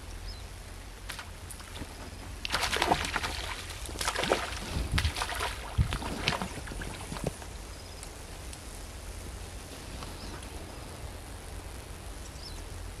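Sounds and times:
fish splashing in water: 0:01.1 - 0:07.4.

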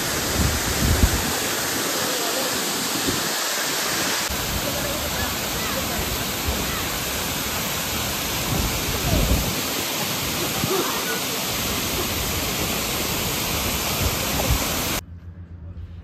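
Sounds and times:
waterfall rushing: 0:00.0 - 0:15.0.

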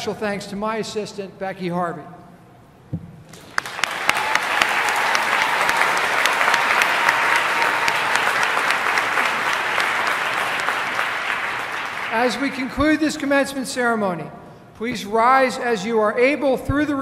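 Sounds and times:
audience applauding: 0:03.4 - 0:12.7.

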